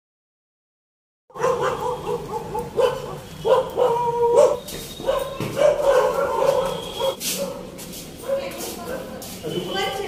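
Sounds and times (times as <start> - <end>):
dog whining and yelping: 1.4 - 7.2.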